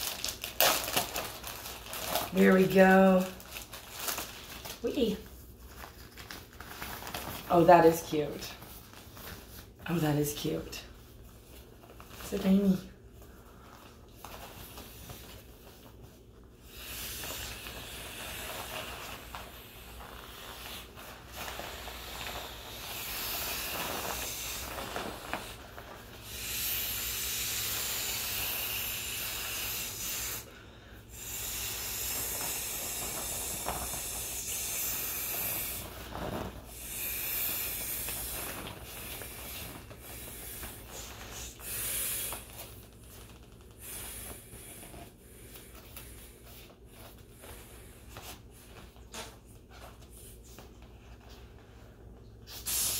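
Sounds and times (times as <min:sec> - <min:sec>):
breathy blowing into inflatable toy: 0:16.6 - 0:42.8, 0:43.7 - 0:48.4, 0:52.4 - 0:52.9.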